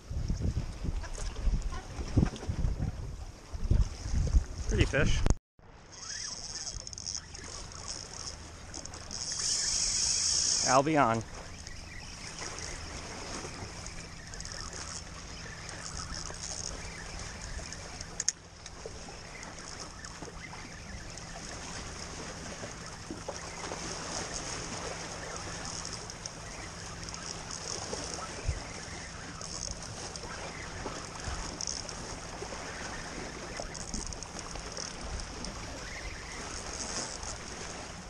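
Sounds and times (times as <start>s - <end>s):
wind on microphone: 0.0s - 5.4s, 11.3s - 38.0s
spinning reel winding: 5.9s - 10.8s.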